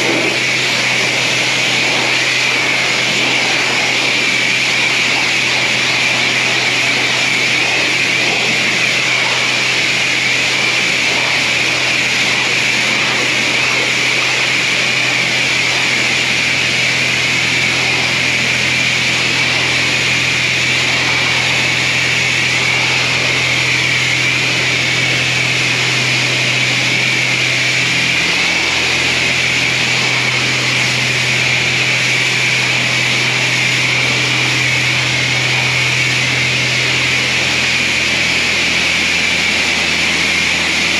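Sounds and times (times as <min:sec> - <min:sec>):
low machine hum: 0:00.0 - 0:40.9.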